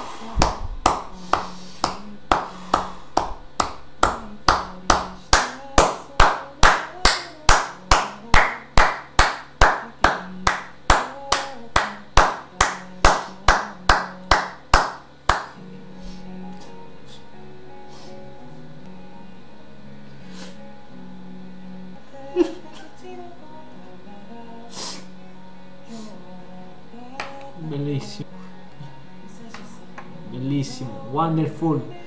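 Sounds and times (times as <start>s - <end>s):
person clapping hands: 0.4s - 15.6s.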